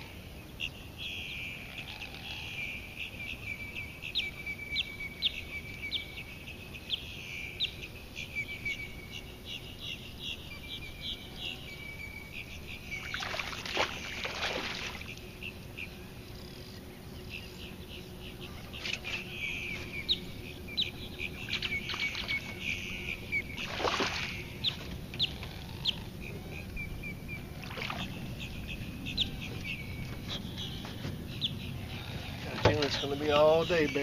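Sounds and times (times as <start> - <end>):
birds chirping: 0.0 - 34.0
fish splashing at surface: 13.2 - 15.0, 23.6 - 24.4.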